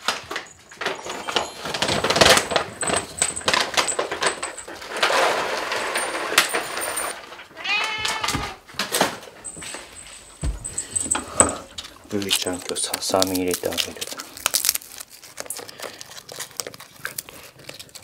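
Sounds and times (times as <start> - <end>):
rattling and rustling: 0.0 - 15.0
cat meowing: 7.5 - 8.6.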